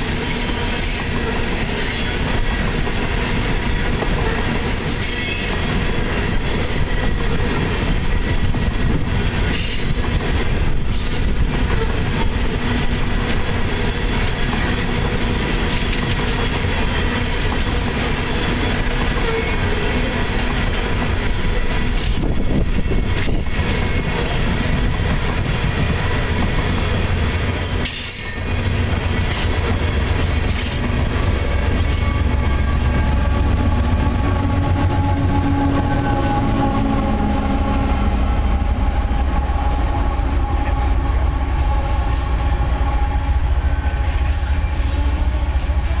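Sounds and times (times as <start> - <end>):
diesel locomotive passing: 0.0 - 46.0
train wheels rumbling on rails: 0.0 - 46.0
thin wheel squeal: 27.9 - 28.8.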